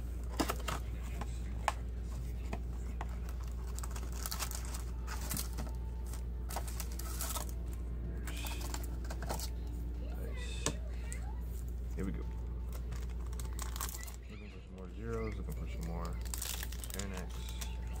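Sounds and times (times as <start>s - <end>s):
steady low hum: 0.0s - 18.0s
rustling and crinkling wrappers: 2.0s - 9.6s, 12.7s - 18.0s.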